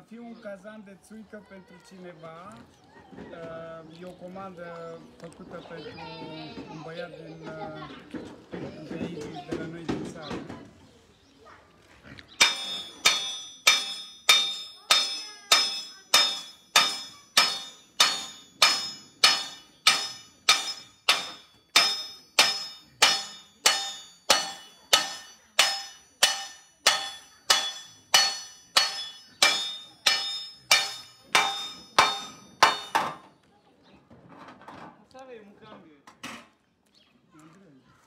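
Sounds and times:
hammer striking copper sheet: 0:12.4 - 0:33.2.

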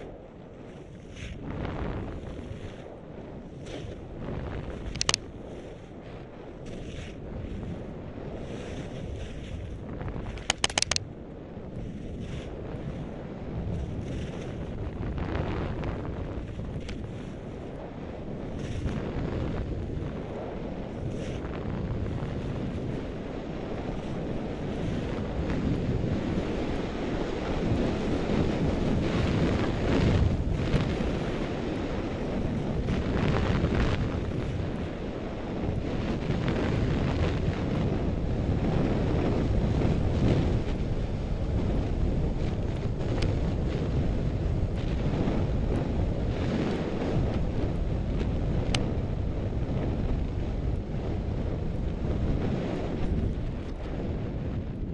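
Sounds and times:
skis scraping over snow: 0:00.0 - 0:11.0, 0:11.6 - 0:54.6
wind buffeting microphone: 0:00.0 - 0:54.9.

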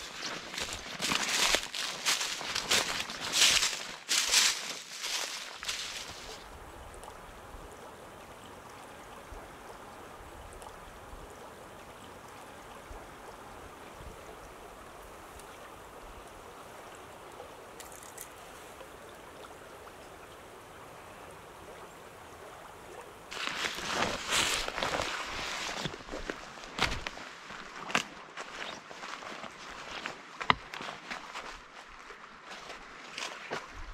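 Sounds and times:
rustling noise: 0:00.0 - 0:06.4, 0:23.3 - 0:33.9.

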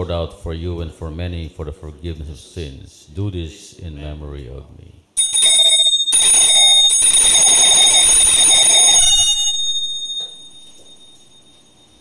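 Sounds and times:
altar bells jangling: 0:05.2 - 0:12.0.

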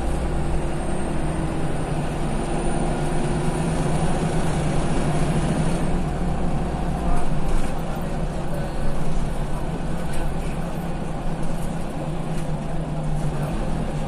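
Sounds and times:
bus engine rumbling: 0:00.0 - 0:14.0.

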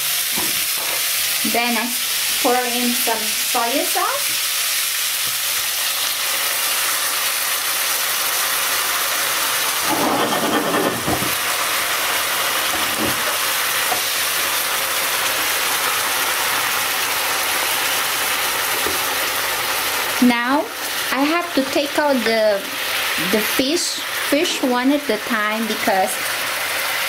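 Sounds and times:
fish sizzling in a pan: 0:00.0 - 0:27.0
spatula scraping a pan: 0:09.8 - 0:11.4.

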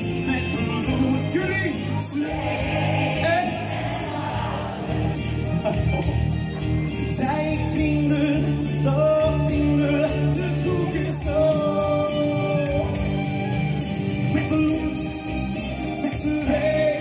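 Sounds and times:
man singing into a microphone: 0:00.0 - 0:03.8, 0:07.1 - 0:13.5, 0:14.2 - 0:17.0
backing track with steady beat: 0:00.0 - 0:17.0.

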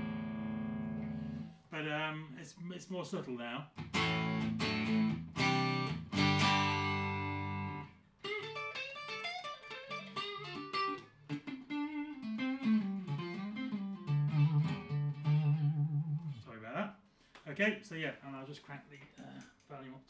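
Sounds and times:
electric guitar chords strummed: 0:00.0 - 0:01.5, 0:03.8 - 0:16.4
electric guitar single-note lines: 0:00.0 - 0:01.5, 0:03.8 - 0:16.4.

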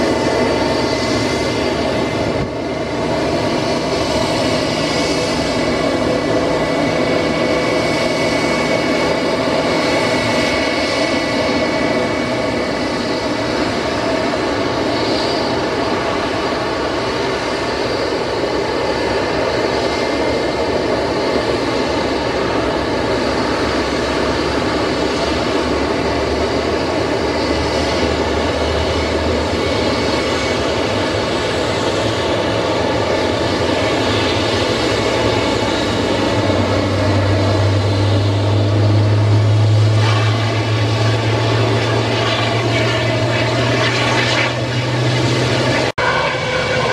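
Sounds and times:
high engine whine: 0:00.0 - 0:46.9
jet engines roaring at idle: 0:00.0 - 0:46.9.

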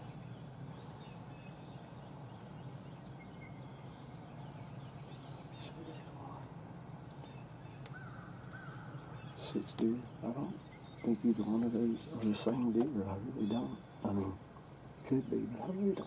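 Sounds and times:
high bird chirps: 0:07.0 - 0:14.4.

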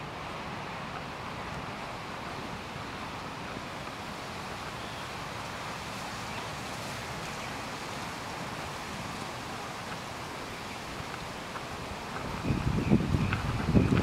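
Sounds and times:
palm fronds rustling: 0:00.0 - 0:14.0
wind buffeting microphone: 0:00.0 - 0:14.0.

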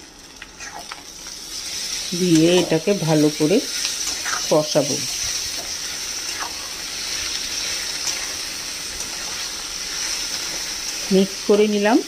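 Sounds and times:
meat and onions sizzling in oil: 0:00.0 - 0:12.0
metal spatula stirring: 0:02.2 - 0:11.2.

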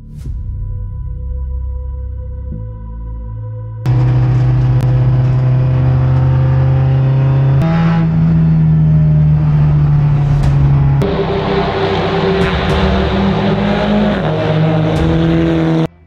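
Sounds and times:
race car engine running: 0:03.9 - 0:16.0.

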